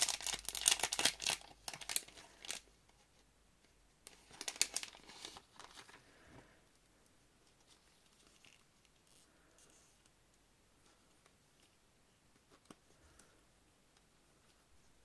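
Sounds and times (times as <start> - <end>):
plastic packet crinkling: 0.0 - 2.6, 4.1 - 6.0.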